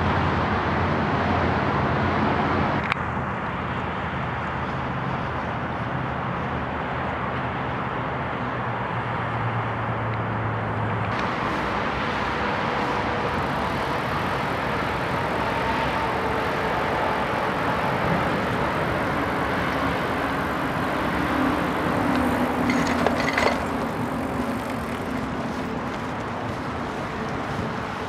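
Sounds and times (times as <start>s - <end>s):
wind and rolling tyres: 0.0s - 28.0s.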